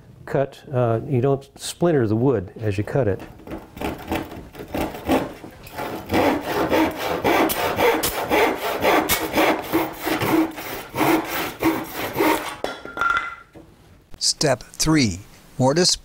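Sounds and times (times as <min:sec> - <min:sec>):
handsaw cutting wooden board: 0:03.8 - 0:12.6.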